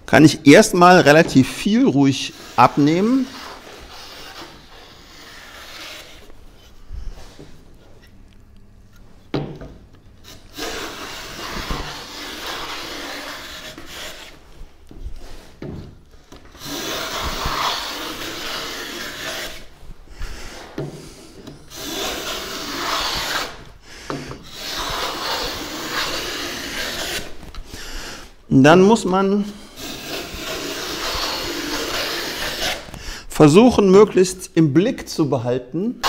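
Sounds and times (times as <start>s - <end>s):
hand plane shaving board: 2.3s - 6.3s, 10.3s - 14.4s, 16.4s - 19.7s, 20.3s - 27.4s, 29.8s - 33.0s.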